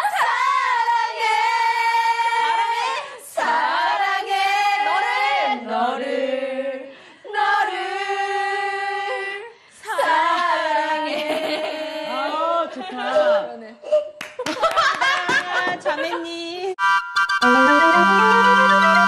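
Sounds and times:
women singing together: 0.0s - 13.8s.

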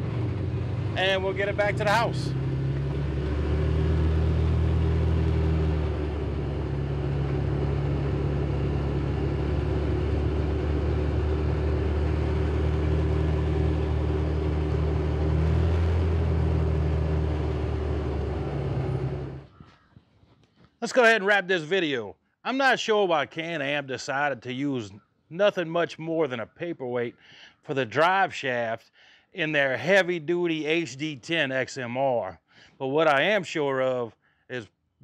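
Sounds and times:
vehicle engine running: 0.0s - 19.8s.

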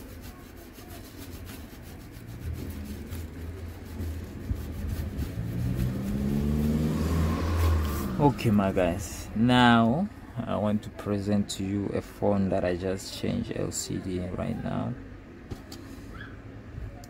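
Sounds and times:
vehicle engine running: 2.2s - 9.5s.

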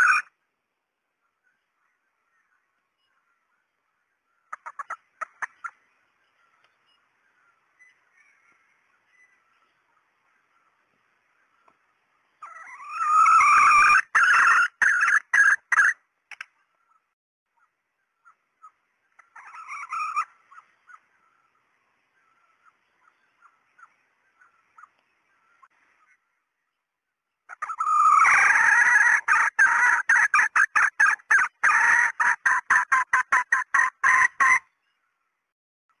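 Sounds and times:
hen calling: 0.0s - 0.4s, 12.4s - 16.0s, 16.8s - 26.5s, 27.5s - 35.1s
hen clucking softly: 17.6s - 21.4s.

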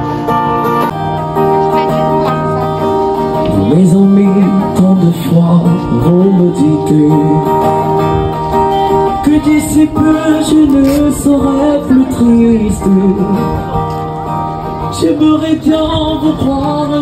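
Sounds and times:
acoustic guitar through amplifier: 0.0s - 17.0s
man singing: 3.4s - 8.2s, 8.9s - 13.9s, 14.8s - 17.0s.

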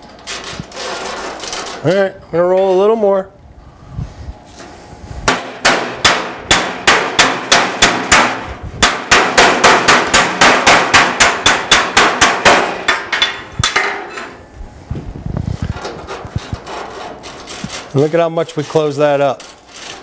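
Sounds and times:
hammer tapping sheet metal: 5.2s - 14.4s.

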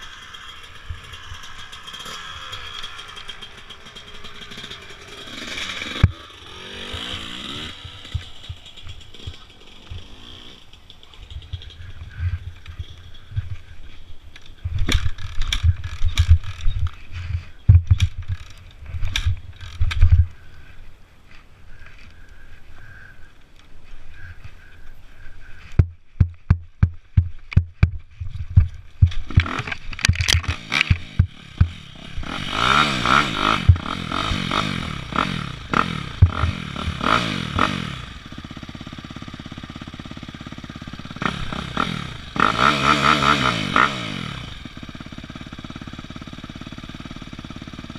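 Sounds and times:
dirt bike engine revving: 0.0s - 14.0s, 14.8s - 20.4s, 29.1s - 47.9s
knocks and clatter: 25.8s - 31.8s.

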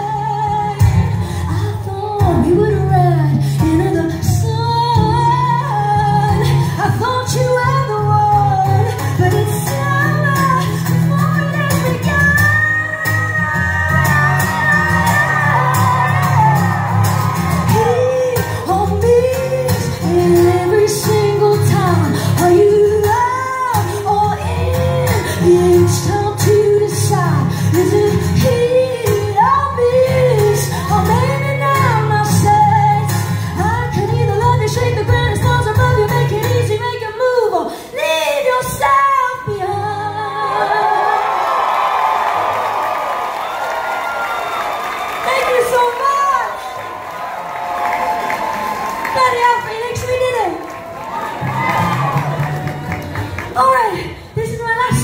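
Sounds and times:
woman singing: 0.0s - 16.9s, 17.5s - 41.4s, 53.6s - 55.0s
acoustic guitar: 0.0s - 42.9s, 46.6s - 55.0s.

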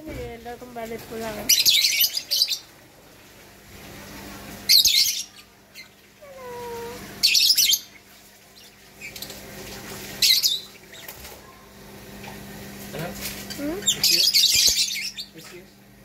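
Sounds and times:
lovebirds shrill calls: 1.4s - 2.7s, 4.7s - 9.4s, 10.2s - 11.2s, 13.4s - 15.6s.

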